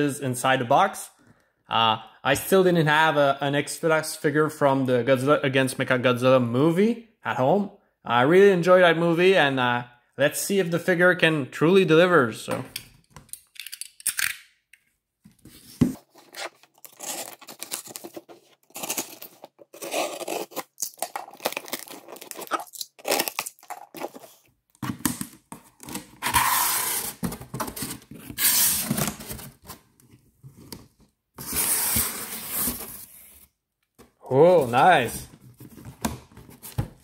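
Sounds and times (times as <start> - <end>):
packing tape tearing from box: 16.0 - 29.7.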